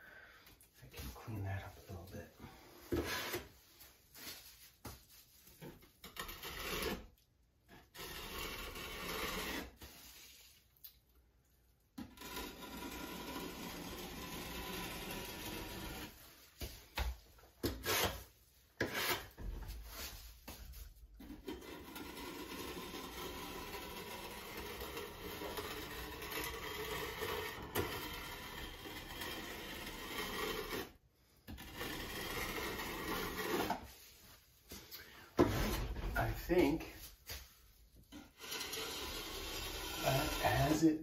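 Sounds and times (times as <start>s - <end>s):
hand scraper scraping glass tile: 5.6s - 7.2s, 7.8s - 10.2s, 12.0s - 16.3s, 17.6s - 19.4s, 21.2s - 33.9s, 38.1s - 40.9s.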